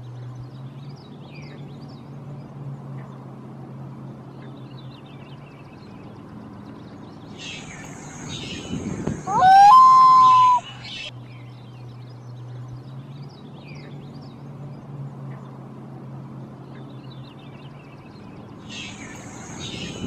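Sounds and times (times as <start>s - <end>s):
soft high chirps: 7.4s - 11.1s
loon calling: 9.2s - 11.1s.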